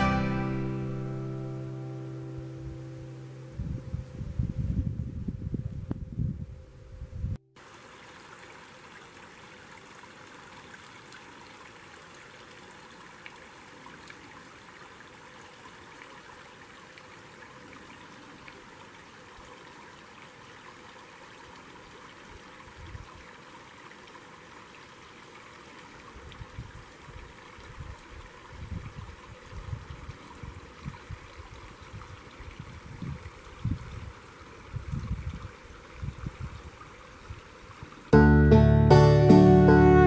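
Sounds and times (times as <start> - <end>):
creek trickling over rocks: 7.6 - 38.2.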